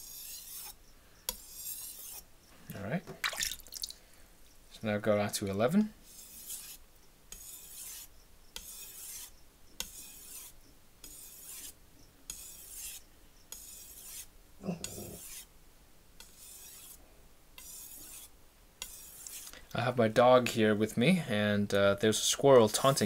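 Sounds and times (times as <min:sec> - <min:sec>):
knife stroked across whetstone: 0:00.0 - 0:02.3, 0:06.0 - 0:15.5, 0:16.2 - 0:17.0, 0:17.6 - 0:19.5.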